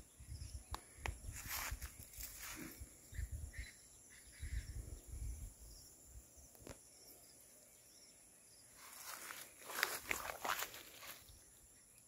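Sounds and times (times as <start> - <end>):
high insect drone: 0.0 - 12.0
footsteps on dry leaves: 1.3 - 2.8, 8.8 - 11.3.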